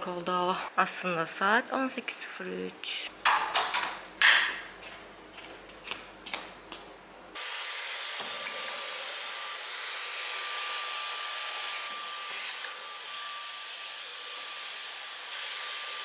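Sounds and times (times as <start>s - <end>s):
cordless vacuum running: 7.4s - 16.0s.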